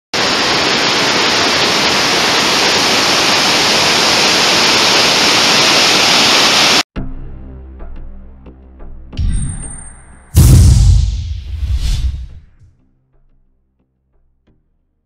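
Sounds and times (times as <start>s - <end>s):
small waterfall rushing: 0.2s - 6.8s.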